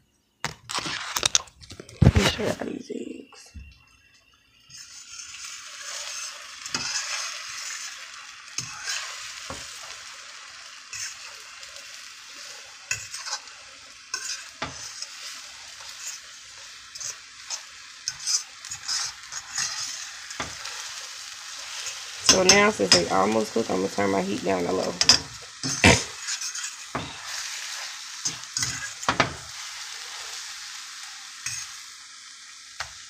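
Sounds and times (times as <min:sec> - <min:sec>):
eggs sizzling in a frying pan: 0:00.4 - 0:33.0
fork scraping a metal pan: 0:04.7 - 0:08.0, 0:08.6 - 0:09.5, 0:12.9 - 0:13.5, 0:14.1 - 0:16.3, 0:16.9 - 0:20.7, 0:25.0 - 0:29.4, 0:31.4 - 0:31.8.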